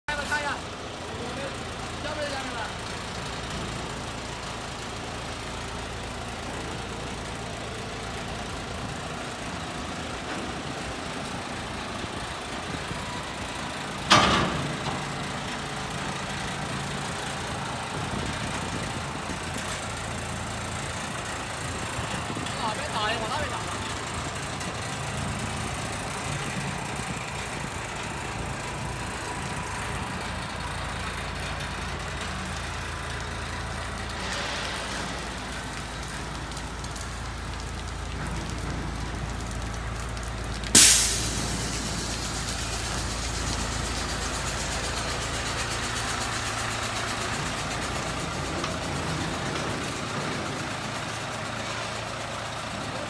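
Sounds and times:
diesel truck engine idling: 0.1 - 53.0
sudden loud burst: 40.8 - 42.5.

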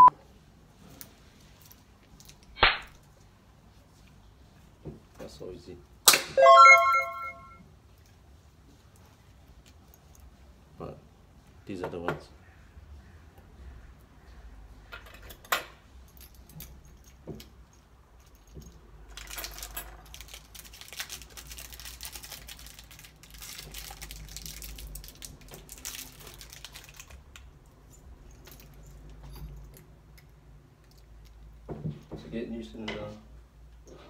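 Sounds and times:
metal lock parts and keys jangling: 1.0 - 2.6, 15.0 - 31.4.

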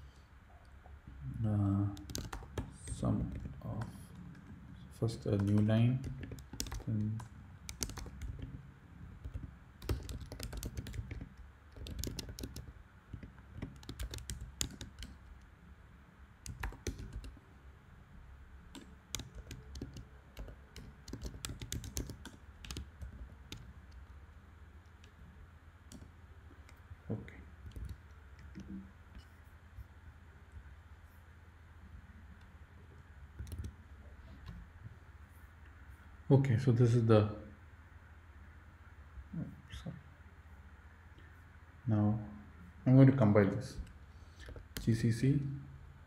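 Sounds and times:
typing on computer keyboard: 2.0 - 4.6, 5.2 - 8.6, 9.2 - 15.4, 16.4 - 17.4, 18.7 - 24.1, 27.6 - 28.8, 33.4 - 33.8.

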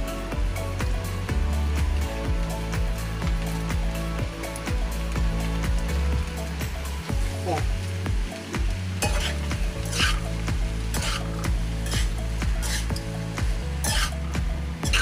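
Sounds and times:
food sizzling: 0.0 - 15.0
spatula scraping a wok: 9.0 - 13.1, 13.8 - 15.0.

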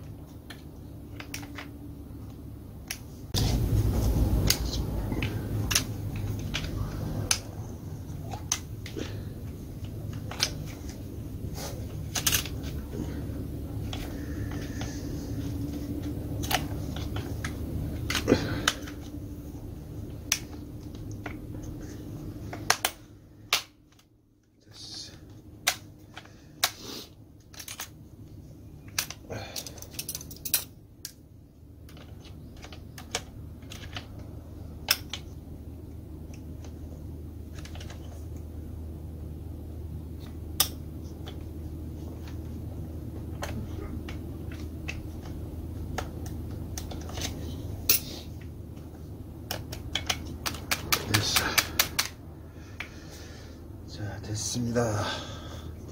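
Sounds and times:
steady low hum: 0.0 - 55.9
tools clicking and knocking: 11.9 - 12.9, 28.8 - 31.2, 43.2 - 52.2.

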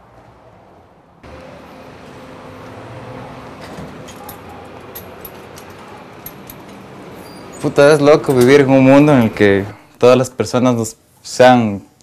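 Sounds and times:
city street traffic: 0.0 - 10.2
light clicks and clinks: 3.6 - 8.6.

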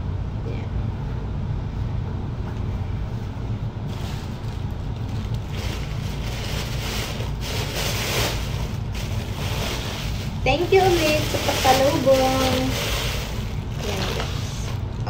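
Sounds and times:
steady low hum: 0.0 - 15.0
plastic bag rustling: 3.8 - 15.0.

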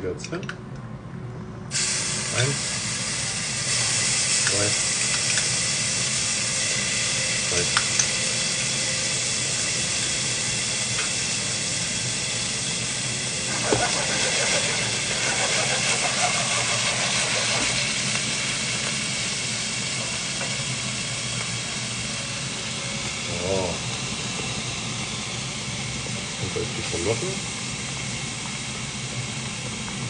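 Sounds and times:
garlic sizzling in hot oil: 1.7 - 30.0.

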